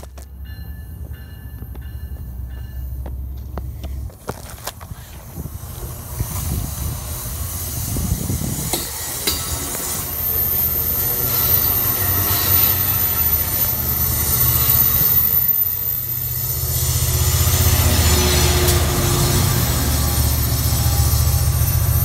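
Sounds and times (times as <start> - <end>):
rail clicks: 0.0 - 22.0
train wheels rumbling: 0.0 - 22.0
high wheel squeal: 5.0 - 22.0.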